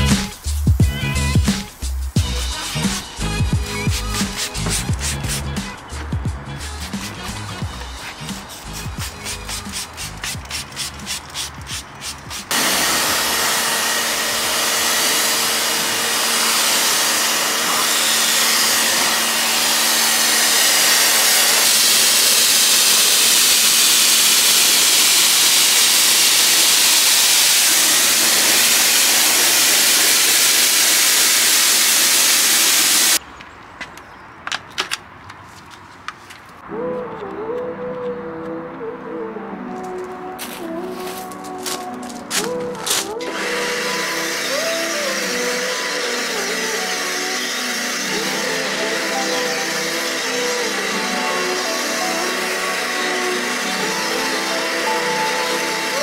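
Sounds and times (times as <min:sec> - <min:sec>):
pressure washer motor humming: 0:02.2 - 0:33.2, 0:41.6 - 0:56.0
pressure washer jet hissing: 0:02.6 - 0:33.2
spray bottle squirts: 0:03.9 - 0:12.6.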